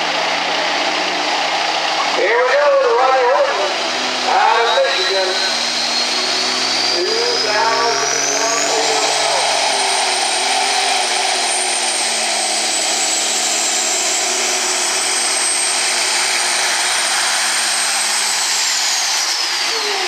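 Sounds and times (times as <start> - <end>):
truck diesel engine at full throttle: 0.0 - 20.0
turbocharger whistle: 0.0 - 20.0.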